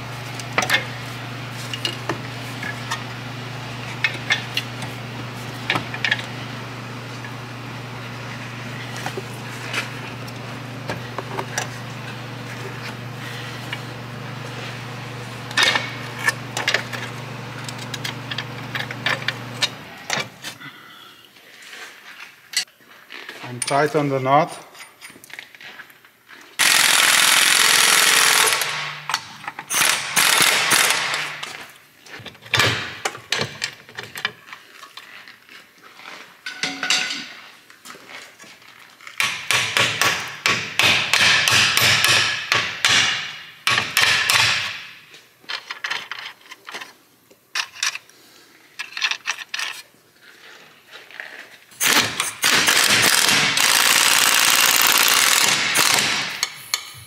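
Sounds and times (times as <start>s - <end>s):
pneumatic impact wrench: 15.5s - 20.3s, 26.6s - 31.6s, 51.8s - 57.0s.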